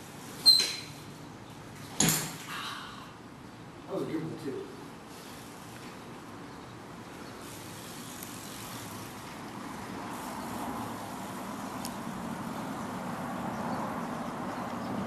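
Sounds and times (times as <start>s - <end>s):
vehicle passing: 7.4s - 15.0s.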